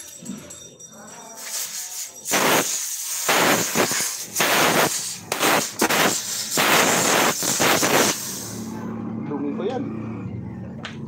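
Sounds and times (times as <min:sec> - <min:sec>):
compressed gas hissing from hose: 0:01.4 - 0:08.8.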